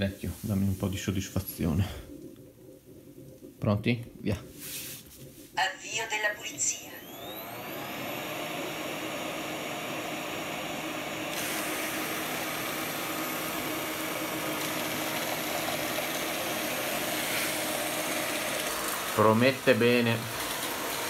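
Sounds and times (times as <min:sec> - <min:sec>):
robot vacuum whirring: 0:06.8 - 0:21.0.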